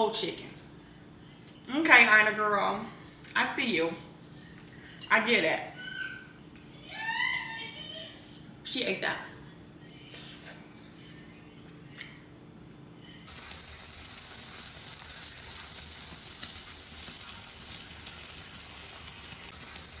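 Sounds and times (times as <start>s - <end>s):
food sizzling in hot pan: 13.3s - 20.0s.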